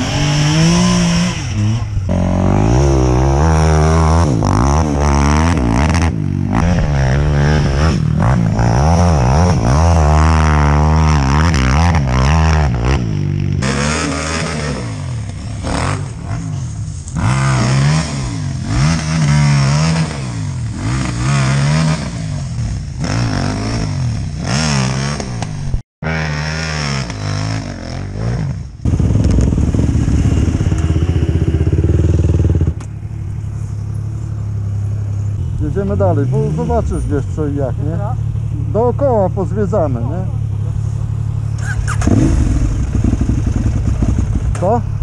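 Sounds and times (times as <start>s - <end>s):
quad bike engine revving: 0.0s - 32.9s, 33.8s - 45.0s.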